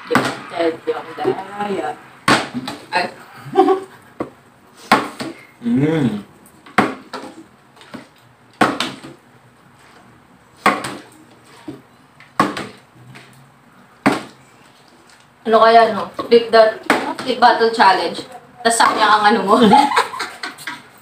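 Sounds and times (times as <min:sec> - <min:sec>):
short vocal sound: 0:05.6 - 0:06.3.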